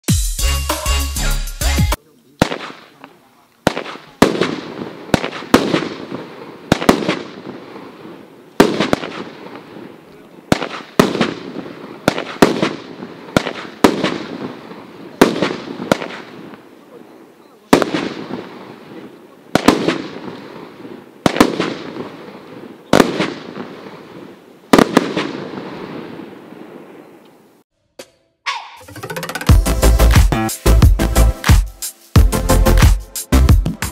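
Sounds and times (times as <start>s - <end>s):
fireworks bangs with rumbling echo: 2.4s - 17.0s, 17.7s - 27.0s.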